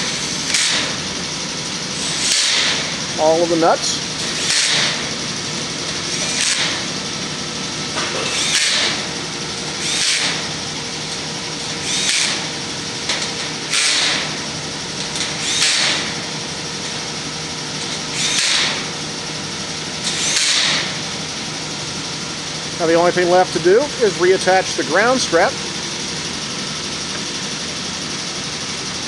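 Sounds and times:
cordless drill driving nuts: 0.0 - 23.0.

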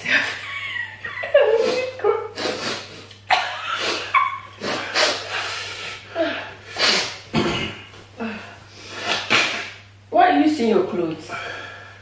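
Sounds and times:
person breathing in sharp hissing breaths: 3.8 - 7.3.

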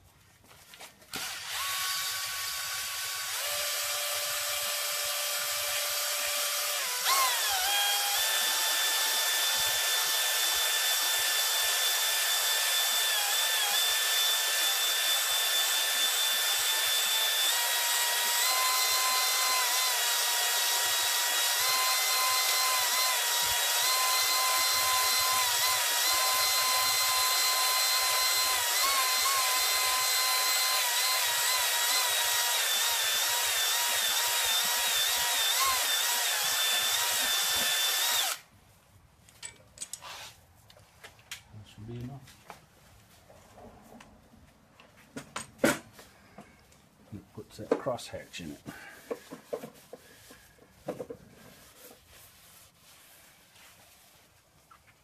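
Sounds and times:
electric drill motor whine: 1.2 - 38.4.

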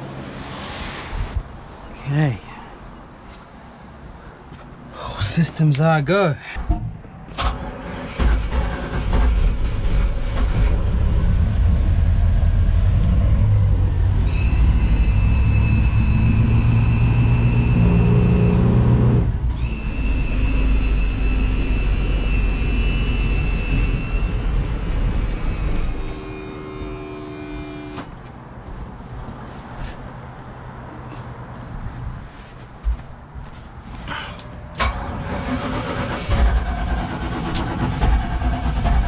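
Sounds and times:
steady high whine: 10.9 - 28.3.

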